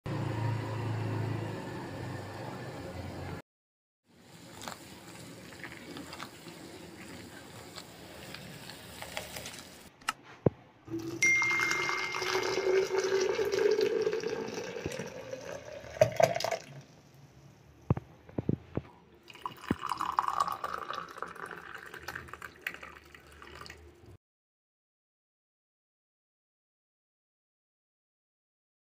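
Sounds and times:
pot hissing on the boil: 0:04.1 - 0:10.0
tea pouring into glass jug: 0:04.3 - 0:09.9, 0:10.9 - 0:16.9, 0:19.2 - 0:24.1
sharp glass clinks: 0:11.2 - 0:12.6.

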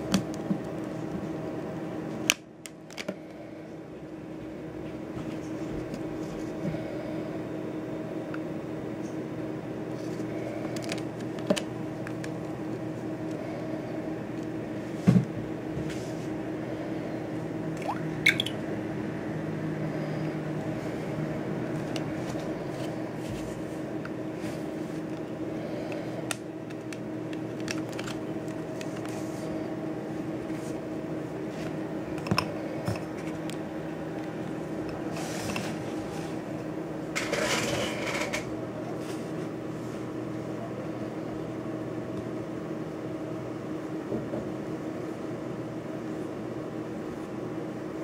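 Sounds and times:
steady hum: 0:00.0 - 0:37.3.

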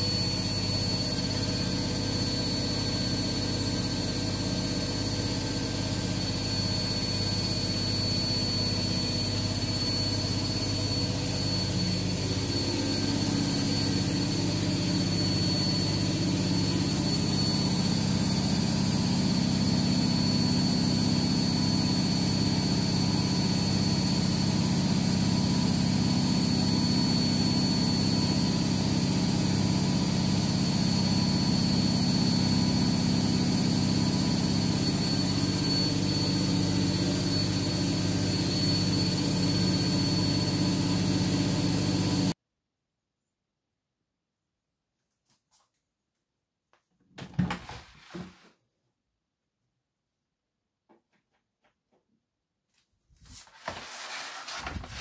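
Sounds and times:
washing machine spinning: 0:00.0 - 0:42.4
thin high whine: 0:04.9 - 0:20.7, 0:30.3 - 0:42.3.

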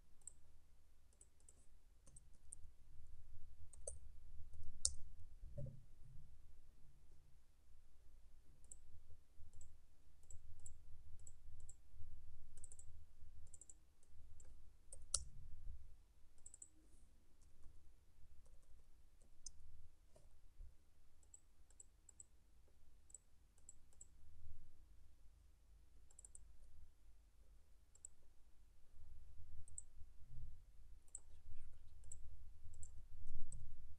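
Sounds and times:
faint low hum: 0:00.0 - 0:33.9
computer mouse clicks: 0:01.1 - 0:02.7, 0:03.7 - 0:04.0, 0:09.5 - 0:11.8, 0:12.5 - 0:13.8, 0:14.4 - 0:15.3, 0:16.4 - 0:16.8, 0:21.2 - 0:22.3, 0:23.1 - 0:24.1, 0:26.1 - 0:26.6, 0:27.9 - 0:28.2, 0:29.6 - 0:29.9, 0:31.1 - 0:33.7.

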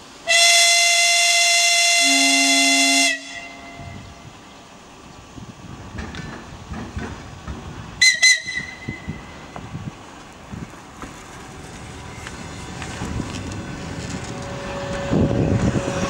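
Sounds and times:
train whistle toots: 0:00.3 - 0:04.0, 0:08.0 - 0:09.2
train wheels knocking on rail joints: 0:05.9 - 0:09.8.

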